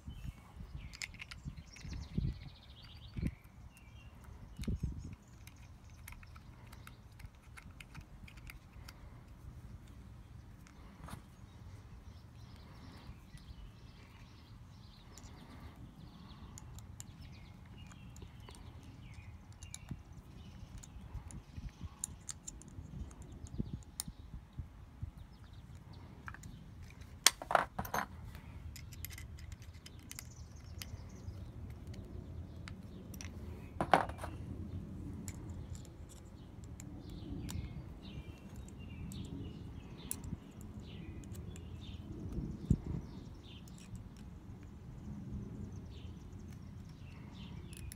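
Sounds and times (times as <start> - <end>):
small metal parts clicking: 0.8 - 10.0, 15.0 - 24.1, 25.7 - 34.4, 35.2 - 44.7, 46.4 - 47.9.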